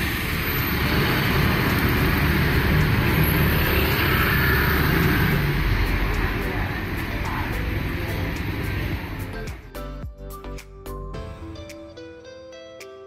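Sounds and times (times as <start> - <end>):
motorbike engines running: 0.0 - 9.7
street traffic: 0.0 - 12.7.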